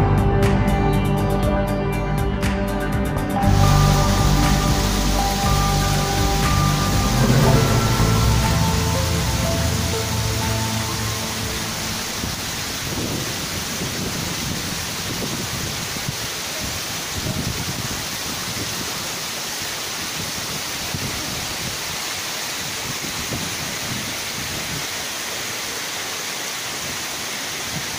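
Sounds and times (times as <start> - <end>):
low rumble: 3.4 - 13.5
waterfall rushing: 3.4 - 27.9.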